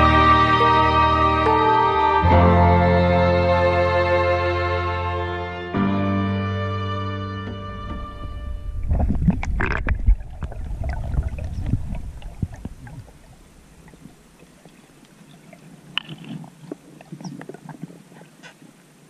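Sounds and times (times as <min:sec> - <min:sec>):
muffled underwater ambience: 0:07.8 - 0:19.0
water churning and gurgling: 0:08.0 - 0:19.0
small underwater clicks and crackles: 0:08.8 - 0:19.0
small splashes: 0:08.9 - 0:18.8.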